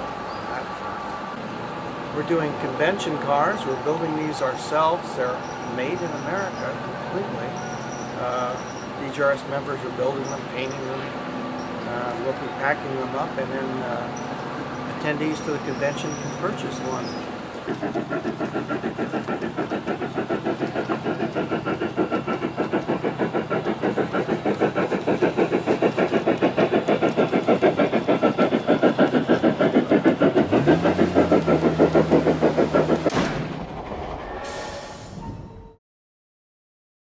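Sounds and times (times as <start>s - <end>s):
model steam locomotive chuffing: 0.0s - 33.2s.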